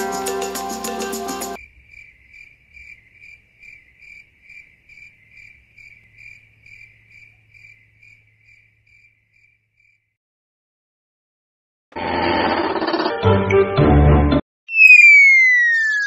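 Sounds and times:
cricket chirping: 0:00.0 - 0:10.2.

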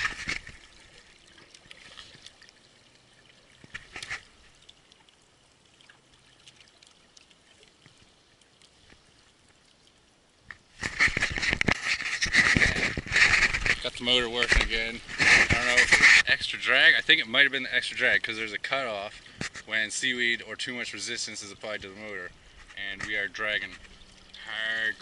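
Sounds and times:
water splashes: 0:00.0 - 0:25.0
motor churning water: 0:21.5 - 0:25.0
water lapping against boat: 0:21.8 - 0:25.0.

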